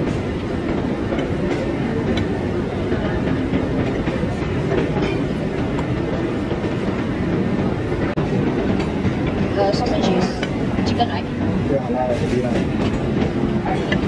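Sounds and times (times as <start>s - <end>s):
murmur of crowd chatter: 0.0s - 14.0s.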